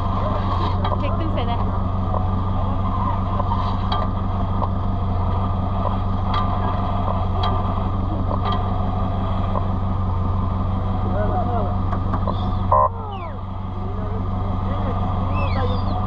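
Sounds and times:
knocks and rattles: 0.0s - 9.7s
vehicle engine droning: 0.0s - 16.0s.

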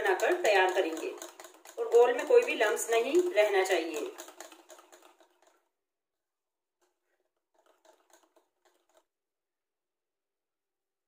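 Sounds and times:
whisk ticking against plastic bowl: 0.0s - 5.8s, 6.8s - 9.1s.

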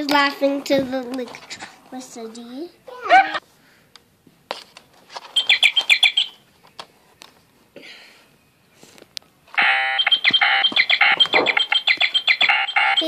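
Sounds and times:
electronic high chirps: 5.4s - 6.4s, 9.6s - 13.0s
electronic game buzzer: 9.6s - 13.0s.

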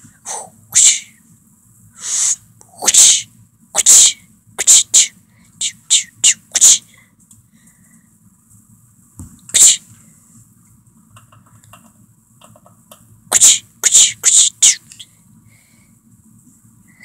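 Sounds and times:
dog sneezing and snorting: 2.8s - 3.2s, 3.8s - 5.1s, 5.7s - 6.8s, 9.5s - 9.9s, 13.3s - 15.0s.

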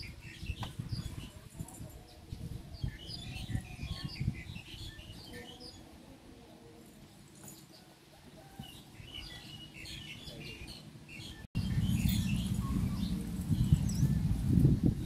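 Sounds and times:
small birds chirping: 0.0s - 15.0s
low rustling rumble: 11.6s - 15.0s.

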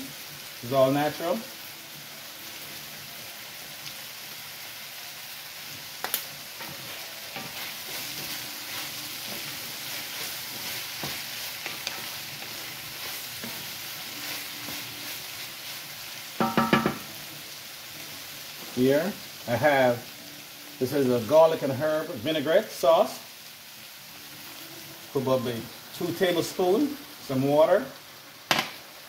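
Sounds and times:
vegetables sizzling in a skillet: 0.0s - 29.0s
wooden spoon scraping a pan: 6.6s - 15.9s.

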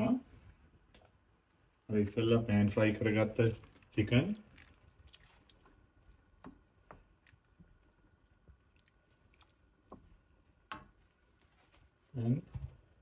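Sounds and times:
wooden spatula stirring: 2.7s - 12.2s.

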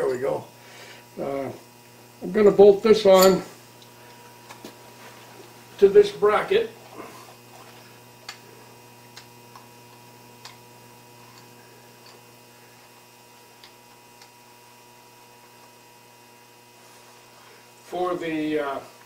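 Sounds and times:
steady electrical hum: 0.0s - 19.0s
faint clicks of metal parts: 10.4s - 10.6s, 11.2s - 12.2s.

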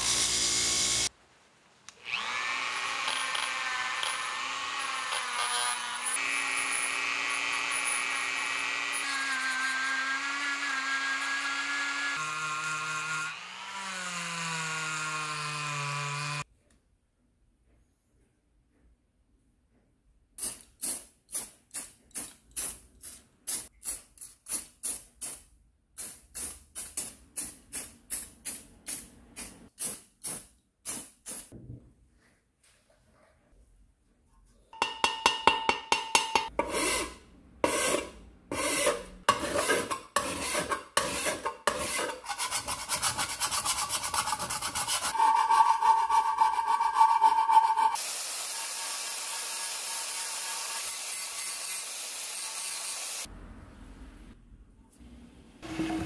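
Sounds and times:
rasping on metal: 36.5s - 48.0s.

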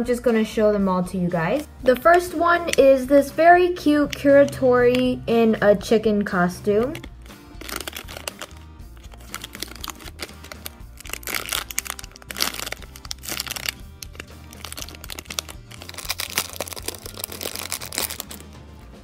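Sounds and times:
background music: 0.0s - 19.0s
plastic bag crinkling: 6.8s - 18.6s.

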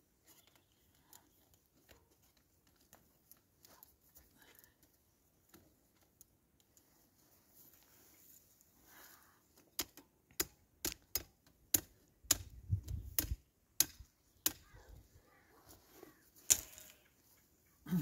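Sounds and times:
willow rods clicking and snapping: 9.6s - 14.8s, 16.4s - 17.1s.

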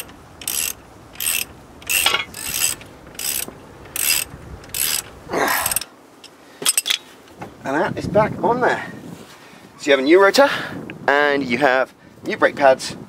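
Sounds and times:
ratchet wrench clicking: 0.0s - 7.0s.

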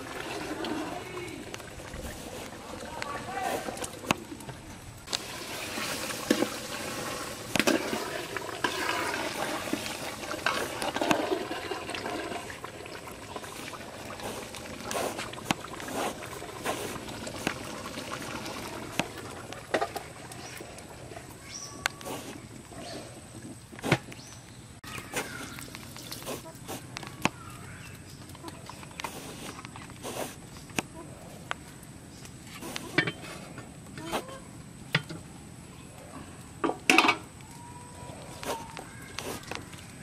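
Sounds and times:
water rushing and splashing: 0.0s - 21.5s.

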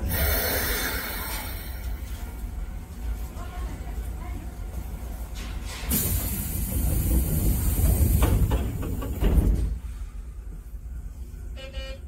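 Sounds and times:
loud air hiss: 0.0s - 1.8s.

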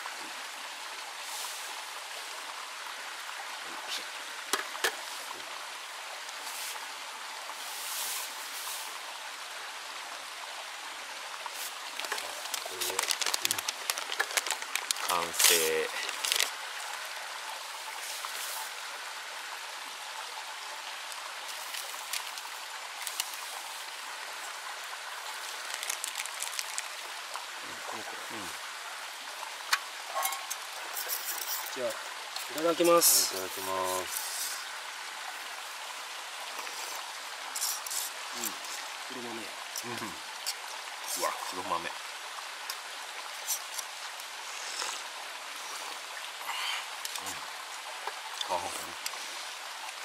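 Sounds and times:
steady rushing hiss: 0.8s - 9.3s, 11.3s - 19.8s, 21.0s - 49.9s
liquid poured into a cup: 11.6s - 16.6s, 25.4s - 27.1s
tableware clinking: 30.1s - 30.6s.

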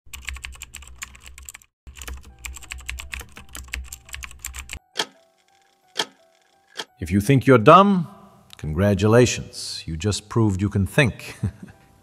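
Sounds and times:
rapid keyboard typing: 0.1s - 6.9s.

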